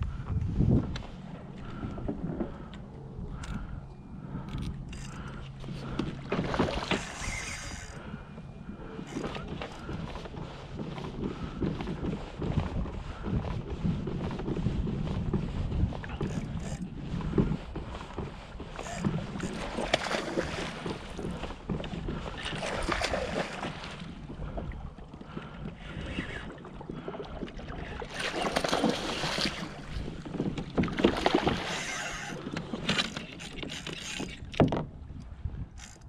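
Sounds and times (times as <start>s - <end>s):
fishing rod and reel handling: 0.9s - 8.3s, 8.9s - 11.4s, 15.9s - 24.0s, 27.8s - 36.0s
water splashing around kayak hull: 5.2s - 35.8s.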